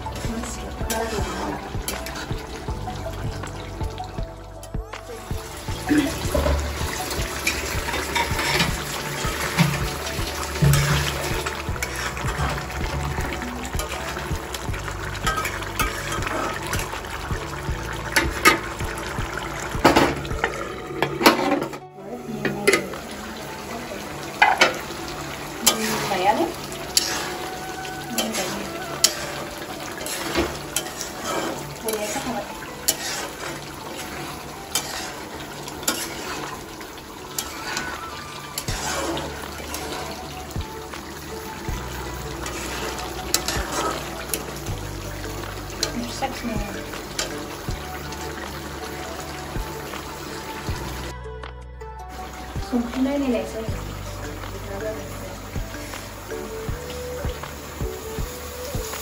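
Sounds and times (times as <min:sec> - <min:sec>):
spatula stirring: 0:00.0 - 0:21.6, 0:24.4 - 0:50.8
thick curry bubbling: 0:00.0 - 0:21.8, 0:22.6 - 0:51.2
liquid sloshing in wok: 0:24.4 - 0:51.1.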